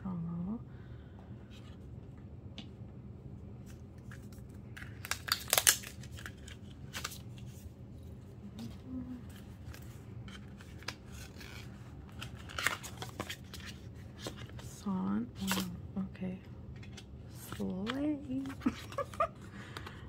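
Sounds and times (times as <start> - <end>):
plastic and paper packaging rustling: 3.6 - 15.8, 16.7 - 20.0.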